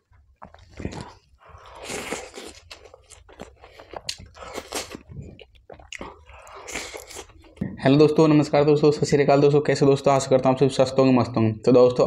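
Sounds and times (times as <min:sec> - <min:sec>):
man chewing bread: 0:00.0 - 0:07.6.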